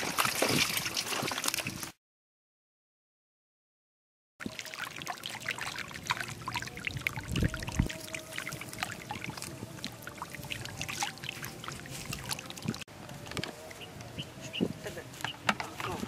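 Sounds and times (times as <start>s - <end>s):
fish thrashing in shallow water: 0.0s - 1.9s, 4.4s - 12.9s
heavier splashes: 4.5s - 12.8s.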